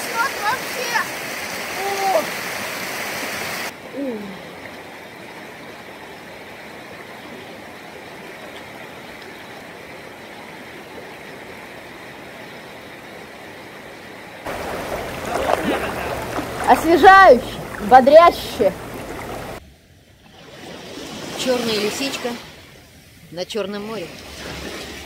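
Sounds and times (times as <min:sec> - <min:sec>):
river rushing over rocks: 0:14.5 - 0:19.6.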